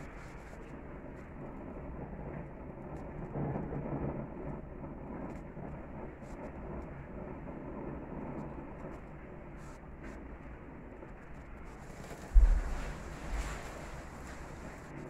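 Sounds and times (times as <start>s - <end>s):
gas grill flame rushing: 11.7s - 15.0s
fat crackling: 12.1s - 14.9s.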